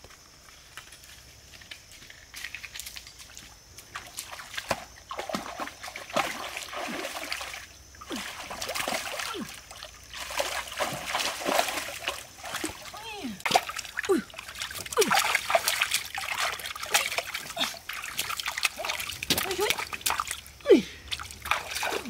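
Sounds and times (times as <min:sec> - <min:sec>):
splashing in shallow water: 0:02.3 - 0:22.0.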